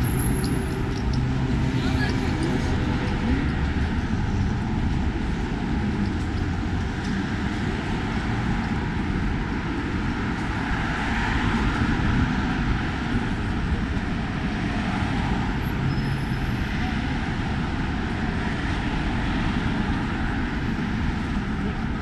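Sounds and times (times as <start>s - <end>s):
city traffic noise: 0.0s - 22.0s.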